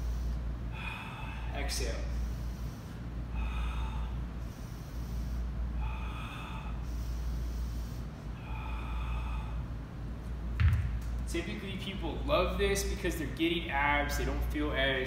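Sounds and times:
man breathing forcefully: 0.0s - 10.1s.

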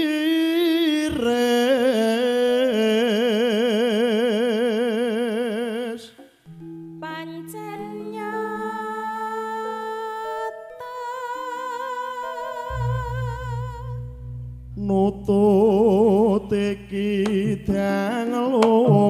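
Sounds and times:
voice singing with vibrato: 7.0s - 14.2s, 14.8s - 19.0s
woman singing wavering note: 7.0s - 15.0s
sustained instrument notes: 9.9s - 17.9s.

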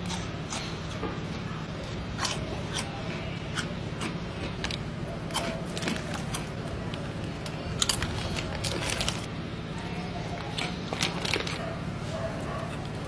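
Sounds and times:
chips crunching: 3.6s - 9.3s, 10.5s - 11.6s.

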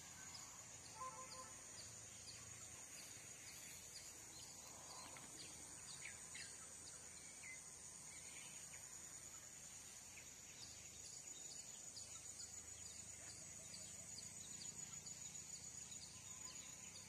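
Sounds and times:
high-pitched insect drone: 0.0s - 7.5s.

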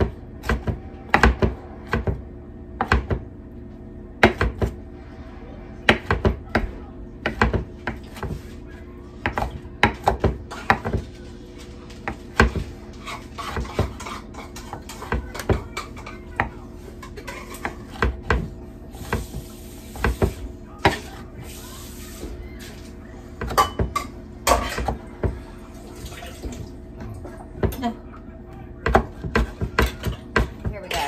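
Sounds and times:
steady low hum: 0.0s - 31.0s
knife and utensils on cutting board: 12.0s - 16.2s.

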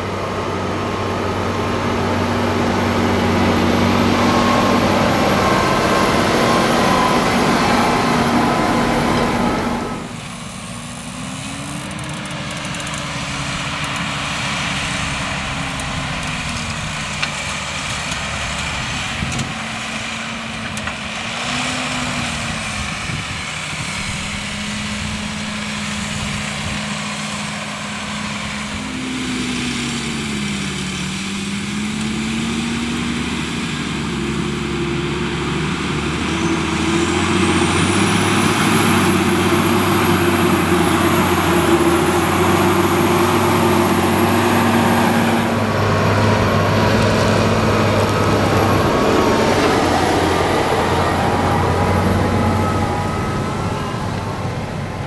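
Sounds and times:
tractor diesel engine under load: 0.0s - 55.0s
high whine rising in pitch: 1.4s - 10.2s, 47.5s - 55.0s.

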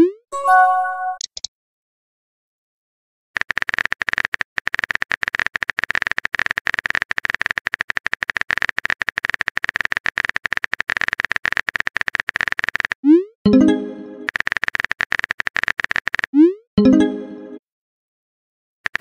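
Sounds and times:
phone keyboard typing clicks: 1.2s - 1.5s, 14.2s - 16.3s.

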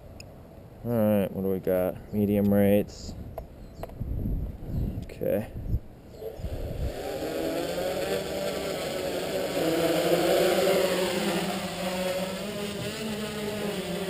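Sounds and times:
drone propellers buzzing: 6.1s - 14.0s.

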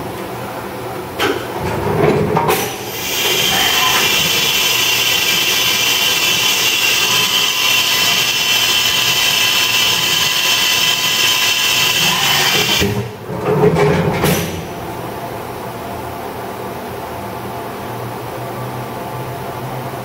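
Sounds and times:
machine spindle high whine: 2.9s - 13.0s.

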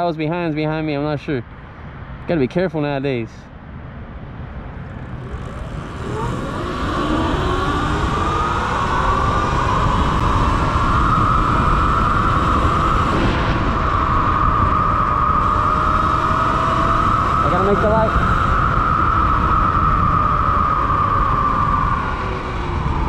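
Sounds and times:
wind rumble on microphone: 3.2s - 23.0s
electric motor whine: 4.6s - 23.0s.

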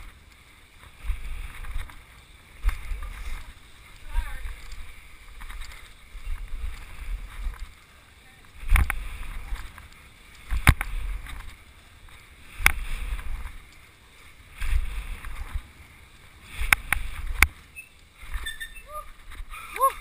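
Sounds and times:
tyre rumble on dirt: 0.8s - 7.9s, 14.4s - 17.6s.

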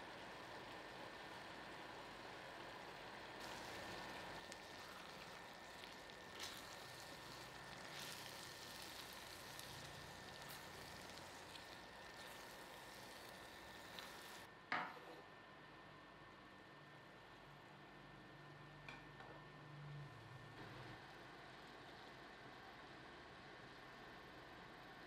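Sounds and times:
sauce sizzling in a pan: 0.0s - 14.5s
spatula stirring: 3.4s - 14.5s.

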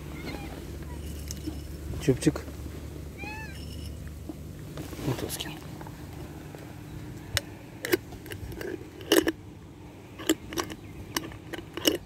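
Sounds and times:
cats crunching dry kibble: 7.4s - 9.4s, 10.1s - 12.0s.

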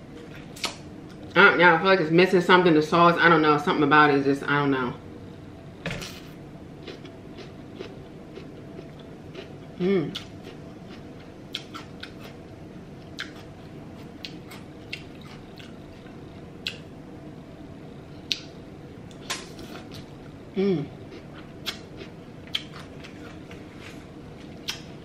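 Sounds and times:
person humming: 9.8s - 10.2s, 20.5s - 21.0s.

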